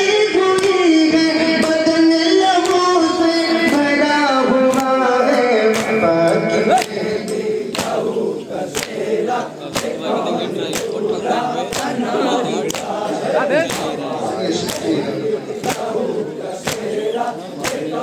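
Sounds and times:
crowd voices: 0.0 - 18.0
men chanting in unison: 0.0 - 18.0.

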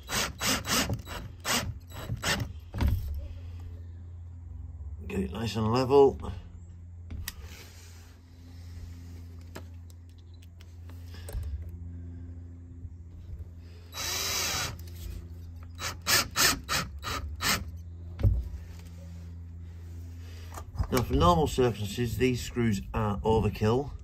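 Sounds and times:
cordless drill driving a screw: 0.0 - 2.5, 13.9 - 15.0, 15.7 - 17.8.

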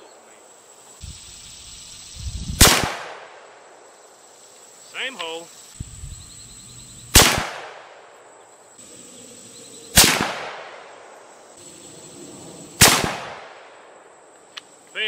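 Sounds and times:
rifle shots with echo: 2.6 - 3.4, 7.1 - 8.1, 9.9 - 11.2, 12.8 - 14.0.

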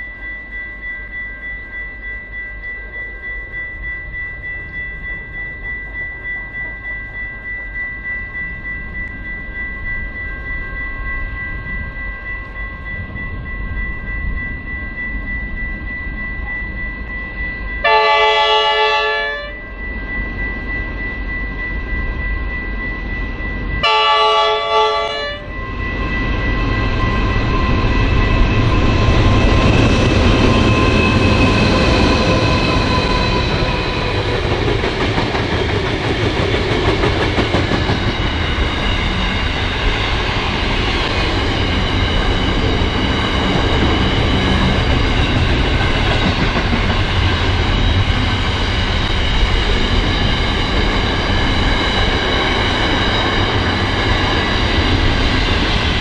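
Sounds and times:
diesel locomotive engines: 0.0 - 56.0
train horn blasts: 17.8 - 19.6, 23.8 - 25.5.

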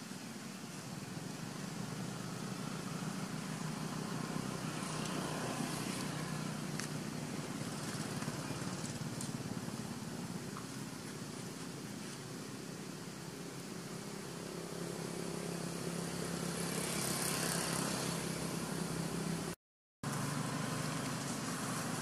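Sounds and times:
vehicle engine passing: 1.2 - 10.4, 14.0 - 22.0.

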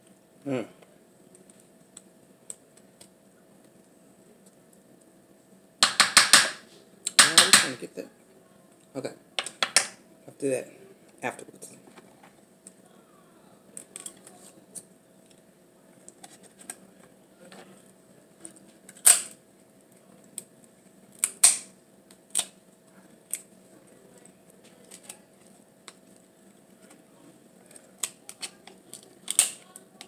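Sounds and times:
lobster shell cracking: 18.9 - 19.4, 21.1 - 22.6, 24.8 - 26.0, 27.7 - 30.0.

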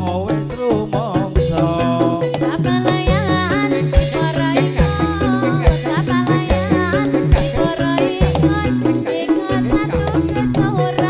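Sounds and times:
bass notes: 0.0 - 11.0
steady percussion beat: 0.0 - 11.0
gliding melody line: 0.2 - 11.0.

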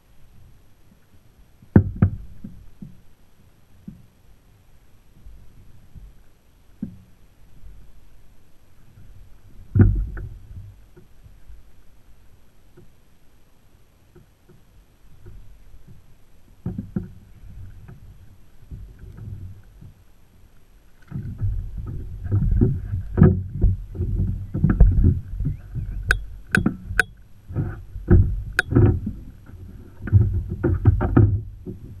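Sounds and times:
knocks and rattles on kayak hull: 1.6 - 3.0, 9.0 - 11.4, 16.6 - 20.0, 21.0 - 32.0
sharp clicks: 26.0 - 27.2.

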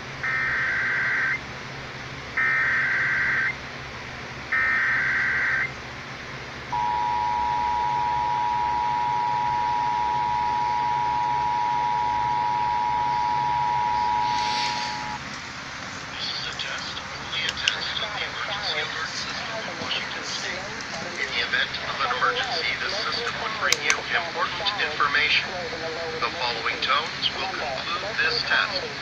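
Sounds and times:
two-tone attention signal: 6.7 - 15.2
data tone bursts: 6.8 - 15.2.

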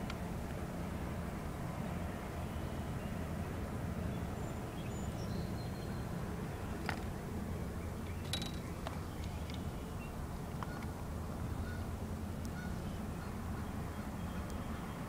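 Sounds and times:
low outdoor rumble: 0.0 - 15.0
handling clicks and knocks: 8.0 - 9.7.

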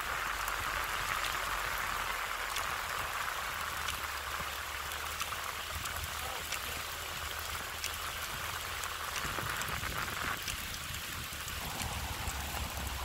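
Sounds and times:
rain hissing on wet road: 0.0 - 13.0
raindrop ticks: 0.0 - 13.0
low rumble: 11.6 - 13.0.

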